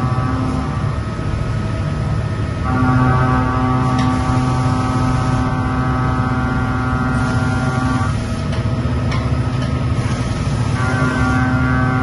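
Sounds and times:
machine hum: 0:00.0 - 0:12.0
coolant spray hiss: 0:03.8 - 0:05.6, 0:07.1 - 0:08.5, 0:10.0 - 0:11.5.

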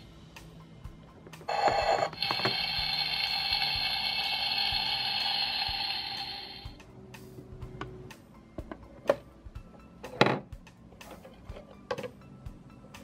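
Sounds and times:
electronic sizzling hiss: 0:01.5 - 0:06.8.

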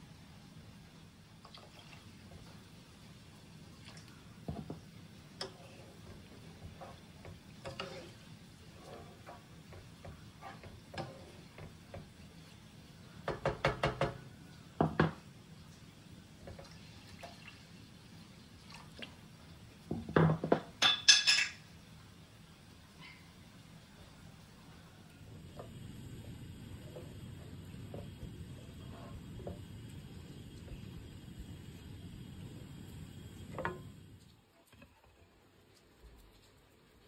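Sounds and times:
wooden spatula knocking in a pan: 0:04.4 - 0:05.5, 0:13.2 - 0:14.2, 0:14.8 - 0:15.2, 0:19.9 - 0:20.8.

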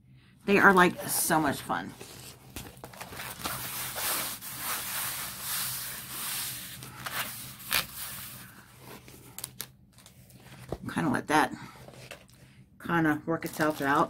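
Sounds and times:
canvas rustling and rubbing: 0:02.4 - 0:08.6.

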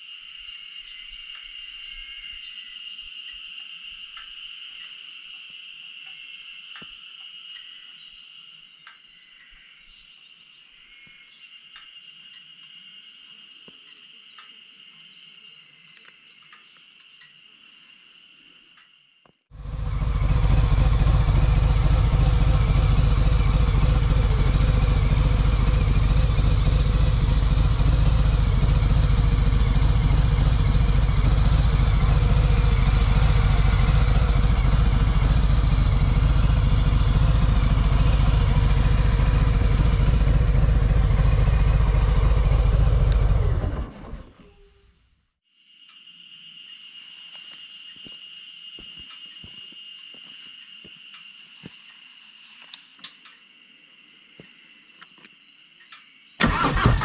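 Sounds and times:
bird chirps: 0:00.0 - 0:43.6, 0:44.3 - 0:56.4
insect drone: 0:00.0 - 0:57.0
motorcycle engine idling: 0:19.5 - 0:44.6, 0:56.4 - 0:57.0.

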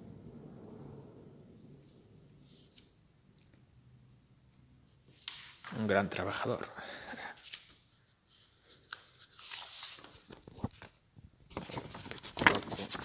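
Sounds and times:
stiff paper rustling and crackling: 0:07.4 - 0:13.0.

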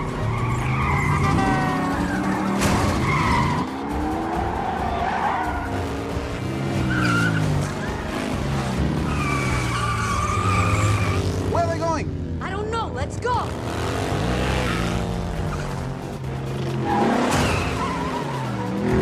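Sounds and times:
racing engines revving: 0:00.0 - 0:19.0
tyres squealing: 0:00.1 - 0:05.9, 0:08.8 - 0:11.3.

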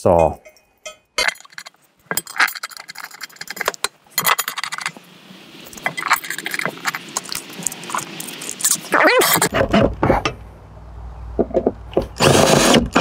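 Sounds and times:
metal screws clinking: 0:00.4 - 0:04.9.

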